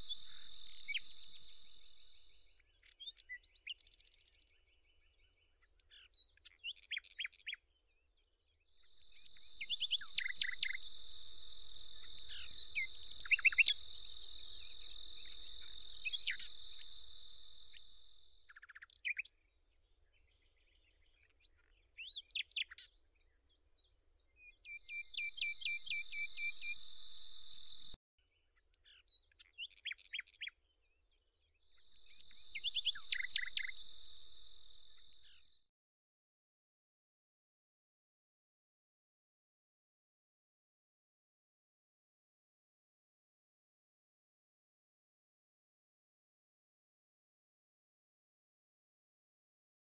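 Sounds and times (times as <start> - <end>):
insect stridulating: 0.0 - 2.4, 9.0 - 18.4, 25.1 - 28.0, 32.0 - 35.4
small birds chirping: 0.0 - 35.6.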